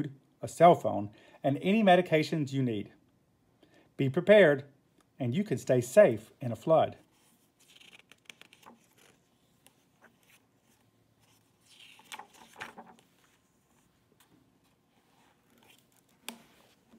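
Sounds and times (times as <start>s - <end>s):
book pages rustling: 7.0s - 16.9s.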